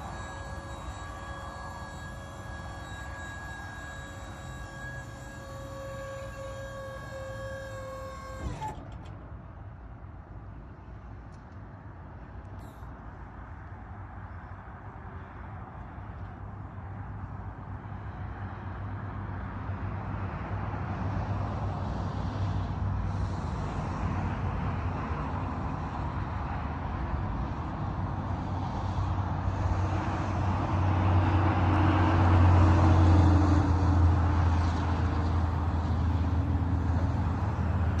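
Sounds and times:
motor humming: 0.0 - 9.1.

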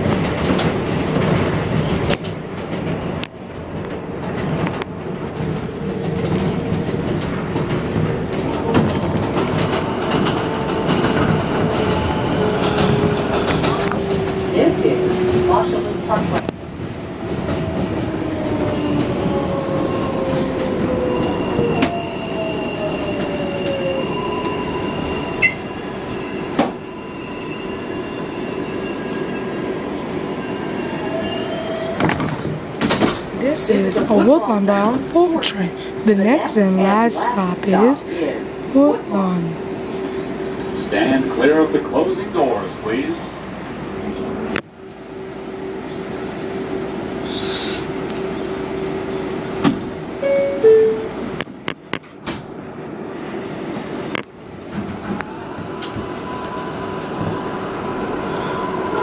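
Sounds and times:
subway train rumbling: 0.0 - 59.0.

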